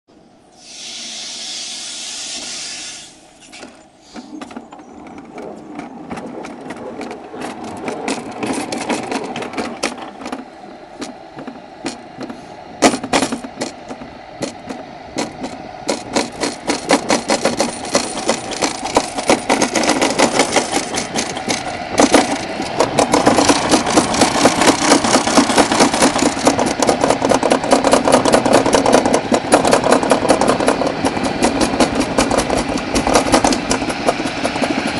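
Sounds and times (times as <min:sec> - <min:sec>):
short hiss: 0:00.6 - 0:04.3
sled rattling down a steel track: 0:03.4 - 0:34.9
sharp knocks: 0:11.0 - 0:34.8.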